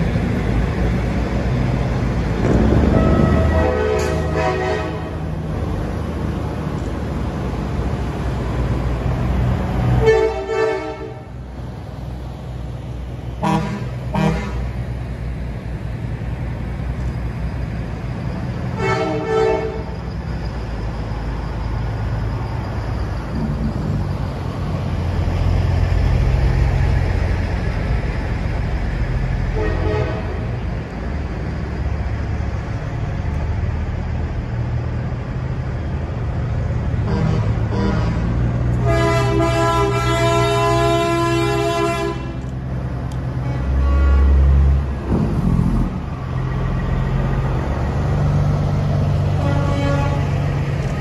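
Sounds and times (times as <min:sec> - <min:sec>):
truck diesel engines passing: 0:00.0 - 0:51.0
short air horn blasts: 0:02.9 - 0:05.1, 0:38.8 - 0:42.4
long multi-tone air horn: 0:02.9 - 0:05.2, 0:10.0 - 0:11.3, 0:13.4 - 0:14.7, 0:18.8 - 0:20.0, 0:29.5 - 0:30.4, 0:37.0 - 0:42.4, 0:43.4 - 0:44.6, 0:49.3 - 0:50.4.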